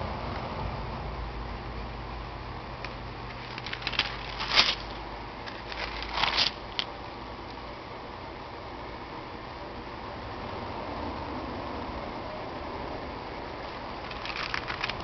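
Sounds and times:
stiff page turning and crackling: 3.3s - 6.9s, 13.6s - 15.0s.

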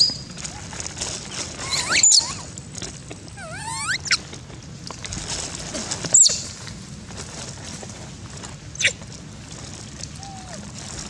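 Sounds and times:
monkeys squealing: 1.6s - 2.5s, 3.4s - 4.2s.

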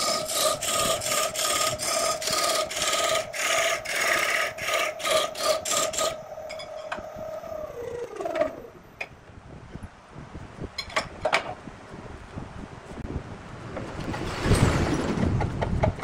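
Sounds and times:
wood rubbing on lathe: 0.0s - 8.7s
wood lathe hum coasting down: 0.0s - 8.8s.

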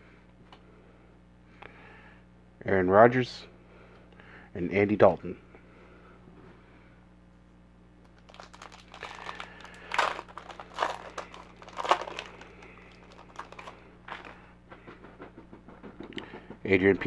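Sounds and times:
foil wrapper crinkling: 8.0s - 14.5s.

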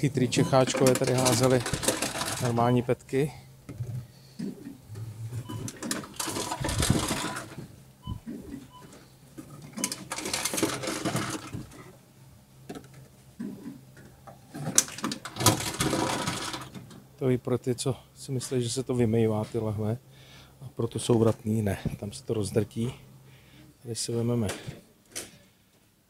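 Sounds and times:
low machine hum: 0.0s - 25.8s
machine crushing plastic bottles: 0.6s - 2.7s, 5.6s - 7.6s, 9.7s - 11.8s, 14.5s - 16.8s.

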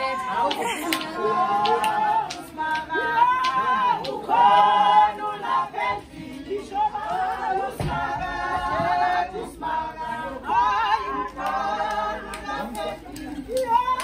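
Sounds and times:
group singing unaccompanied: 0.0s - 14.0s.

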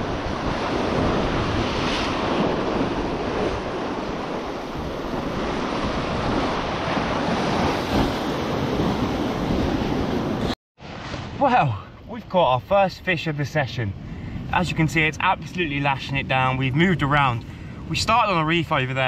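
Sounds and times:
wind buffeting microphone: 0.0s - 10.6s
surf breaking on shore: 0.0s - 11.9s.

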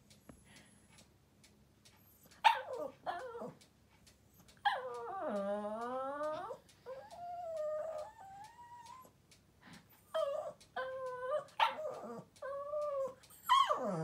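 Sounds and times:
small dog whining and yowling: 2.4s - 3.6s, 4.6s - 9.2s, 10.1s - 14.0s.

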